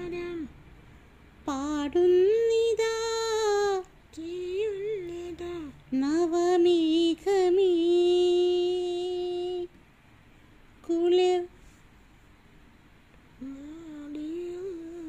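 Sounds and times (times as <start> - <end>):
boy singing unaccompanied: 0.0 - 0.5, 1.4 - 9.7, 13.4 - 15.0.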